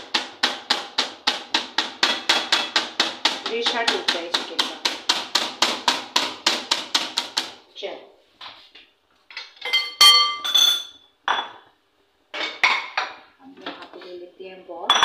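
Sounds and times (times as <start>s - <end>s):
glass bowl clinking: 9.4s - 11.6s.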